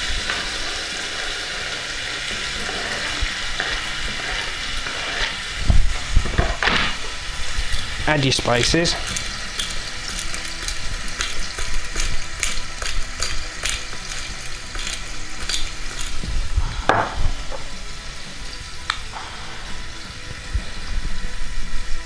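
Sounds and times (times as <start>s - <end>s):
meat sizzling in hot oil: 0.0s - 22.0s
pepper mill grinding clicks: 9.1s - 16.2s.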